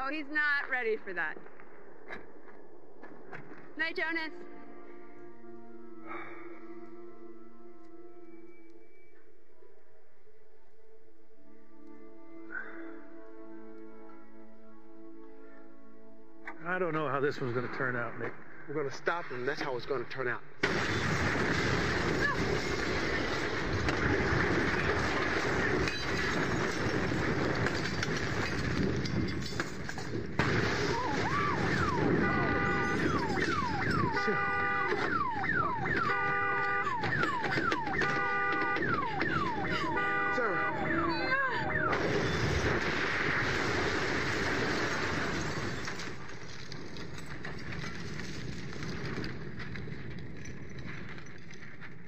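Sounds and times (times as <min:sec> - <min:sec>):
roar of burning cars: 0:20.6 - 0:34.4.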